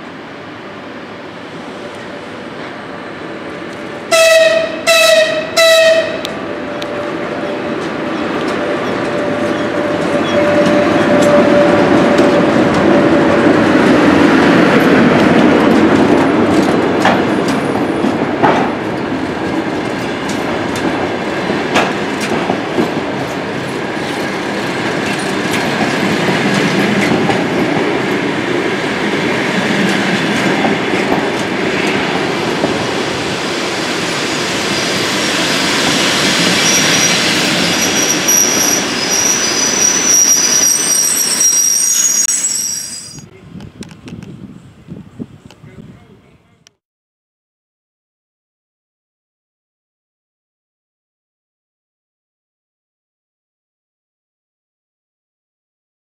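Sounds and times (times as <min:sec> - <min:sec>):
high-pitched wheel squeal: 0:07.4 - 0:12.3, 0:36.4 - 0:43.3
train wheels clattering: 0:14.7 - 0:28.3.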